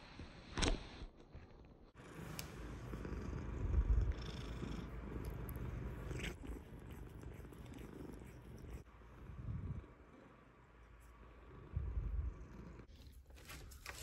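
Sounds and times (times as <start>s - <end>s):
cat purring: 2.0s - 13.0s.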